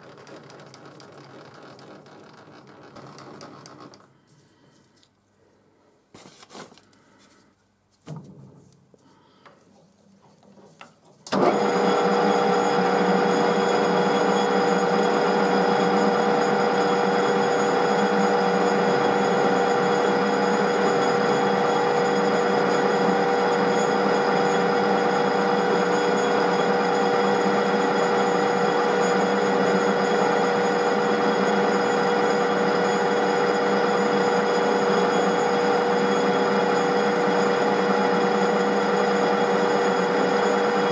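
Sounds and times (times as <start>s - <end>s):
metal lathe motor whine: 11.3s - 40.9s.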